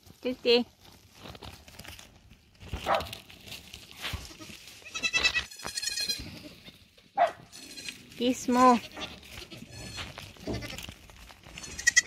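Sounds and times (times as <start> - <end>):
goats bleating: 4.0 - 12.0.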